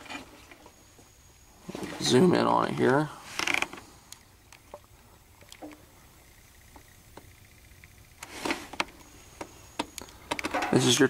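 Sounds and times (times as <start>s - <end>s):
short rustle: 8.2s - 9.3s.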